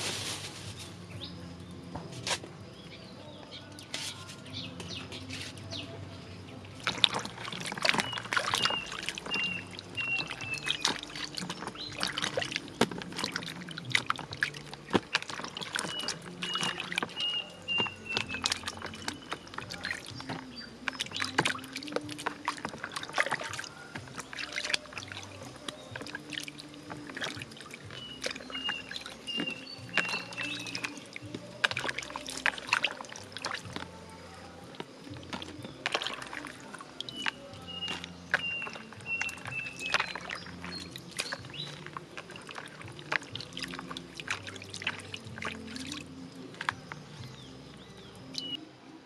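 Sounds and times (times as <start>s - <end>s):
vegetables swished in water: 0.0s - 1.0s, 6.8s - 34.0s, 34.7s - 47.4s
water splashes and drips: 0.0s - 2.6s, 3.3s - 48.6s
bird singing high notes: 8.0s - 12.1s, 37.1s - 41.8s.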